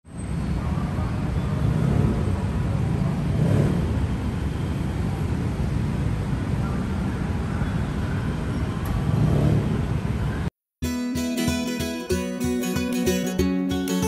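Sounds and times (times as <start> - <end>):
city traffic rumble: 0.0 - 10.6.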